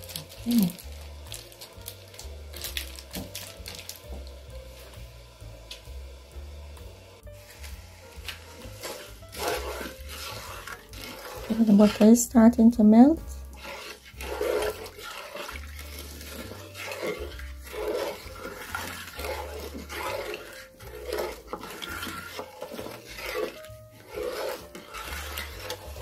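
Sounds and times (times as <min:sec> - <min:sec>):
spoon stirring liquid in pot: 0:00.0 - 0:05.8, 0:06.8 - 0:26.0.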